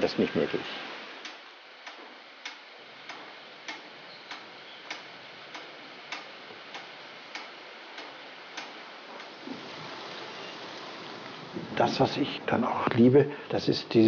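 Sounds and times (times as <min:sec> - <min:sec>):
faint steady hiss: 0:00.0 - 0:14.0
clock ticking: 0:01.2 - 0:09.3.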